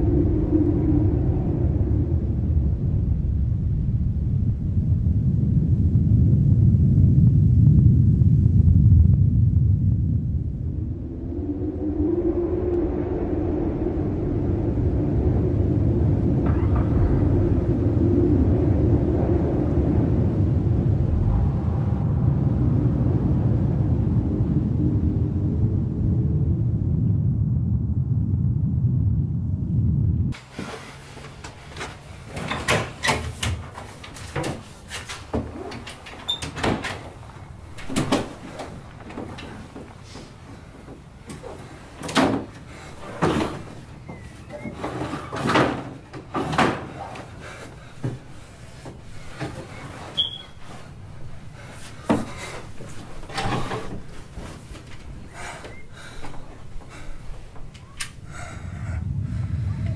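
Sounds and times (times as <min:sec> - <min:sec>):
wardrobe doors opening: 0:30.4 - 0:58.2
wooden drawer scraping open: 0:41.3 - 0:43.8, 0:44.5 - 0:47.3.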